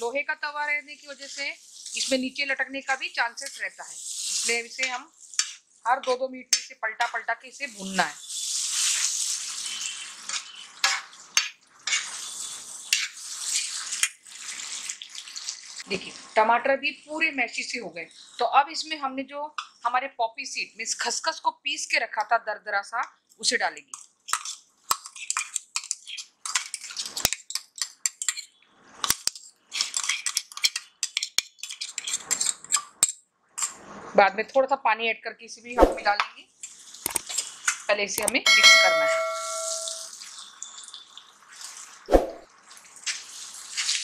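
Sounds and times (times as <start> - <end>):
masala sizzling on iron pan: 0.0 - 18.5, 24.0 - 34.1, 36.1 - 44.0
spatula clicking against pan: 5.4 - 5.6, 23.9 - 28.4
metal spoon scraping cookware: 9.7 - 13.2.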